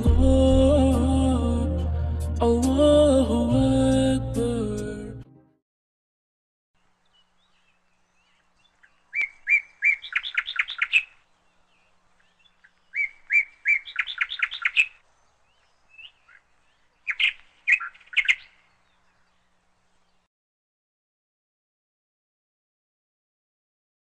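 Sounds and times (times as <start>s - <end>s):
songbird singing: 6.8s - 20.3s.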